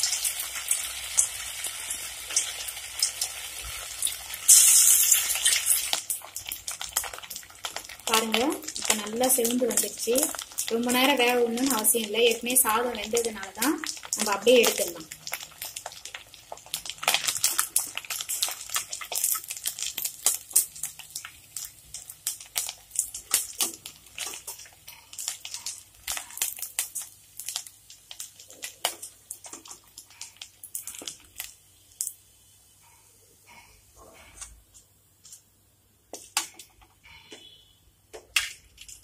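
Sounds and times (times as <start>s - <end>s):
oil crackling and spitting: 0.0s - 9.0s, 15.0s - 32.2s.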